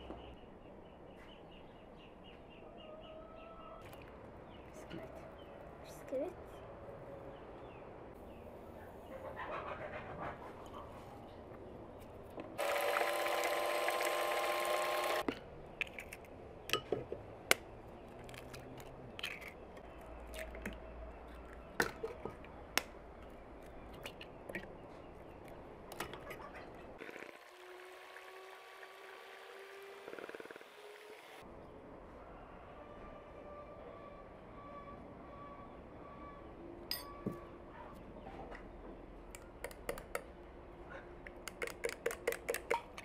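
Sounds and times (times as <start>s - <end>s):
electric hand mixer running: 12.6s - 15.3s, 27.3s - 31.4s
eggs cracking against plastic bowl: 41.3s - 43.0s.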